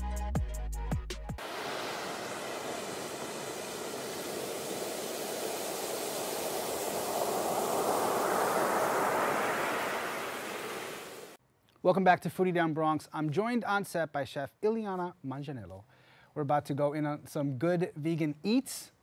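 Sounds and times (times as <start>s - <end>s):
waterfall rushing: 1.4s - 11.4s.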